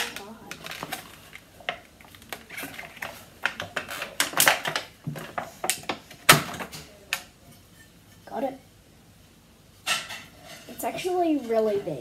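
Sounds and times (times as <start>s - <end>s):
plastic packaging crackling: 0.0s - 6.7s.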